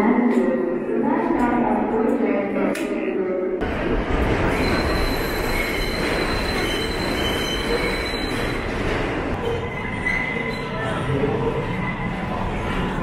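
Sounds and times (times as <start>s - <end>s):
train wheels rumbling on rails: 3.6s - 10.1s
high wheel squeal: 4.6s - 8.6s.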